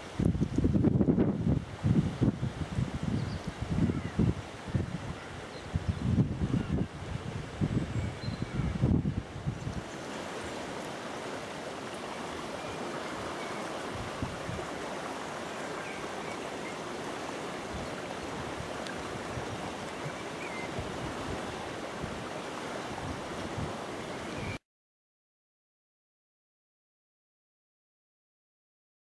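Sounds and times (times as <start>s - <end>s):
river water rushing: 9.3s - 24.6s.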